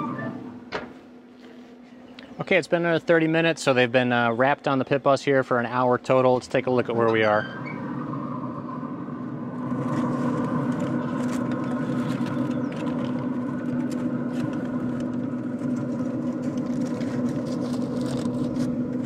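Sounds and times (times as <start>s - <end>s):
steady motor hum: 0.0s - 19.0s
aluminium foil crinkling: 9.6s - 19.0s.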